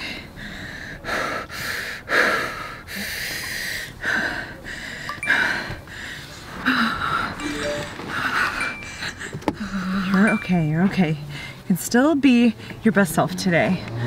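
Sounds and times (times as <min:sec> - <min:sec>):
woman breathing heavily: 0:00.0 - 0:07.4, 0:11.2 - 0:11.7.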